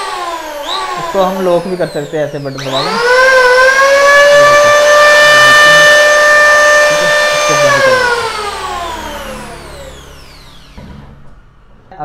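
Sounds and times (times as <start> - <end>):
electric planer whining: 0.0 - 11.9.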